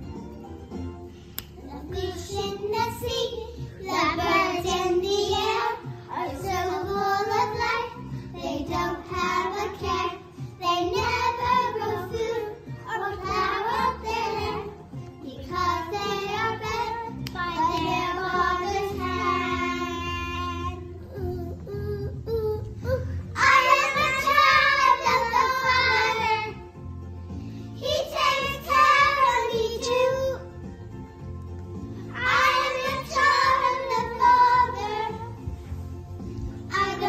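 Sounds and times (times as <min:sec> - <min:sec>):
children singing: 0:08.6 - 0:14.8, 0:23.4 - 0:26.6, 0:32.1 - 0:35.4.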